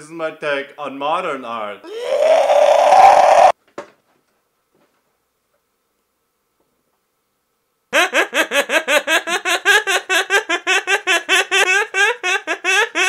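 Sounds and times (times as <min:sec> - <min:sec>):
high-pitched giggling laughter: 0:08.0 - 0:13.0.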